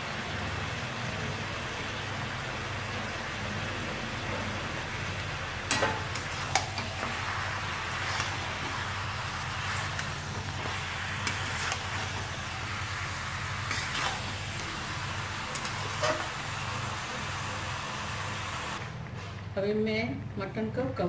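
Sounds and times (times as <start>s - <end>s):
meat sizzling in hot oil: 0.0s - 18.8s
spatula scraping pan: 5.7s - 17.2s.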